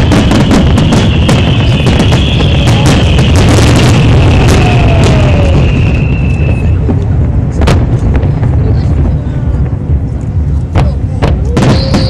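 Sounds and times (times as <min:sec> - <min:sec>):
high firework whistle: 0:00.0 - 0:06.9, 0:11.6 - 0:12.0
continuous low rumble: 0:00.0 - 0:12.0
fireworks booming: 0:00.0 - 0:12.0.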